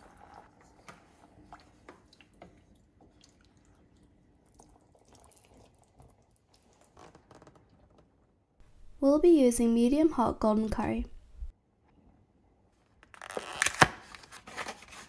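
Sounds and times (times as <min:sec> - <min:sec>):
wooden spoon stirring pot: 0:00.0 - 0:07.0
water dripping: 0:01.4 - 0:06.8.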